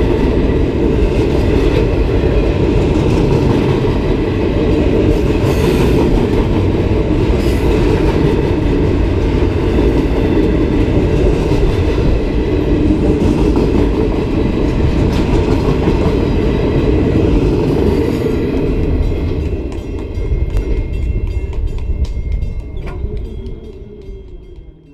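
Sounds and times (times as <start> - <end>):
freight train wheels rumbling: 0.0 - 24.9
wheels clicking over rail joints: 5.2 - 24.9.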